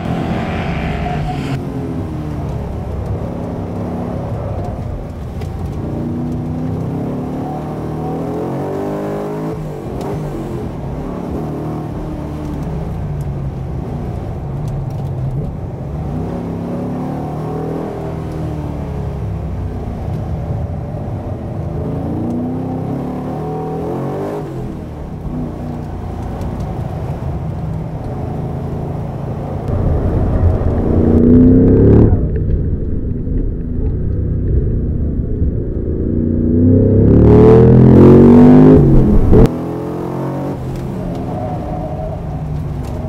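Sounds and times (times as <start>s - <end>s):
car engine revving from inside: 0.0s - 2.3s, 36.0s - 41.2s.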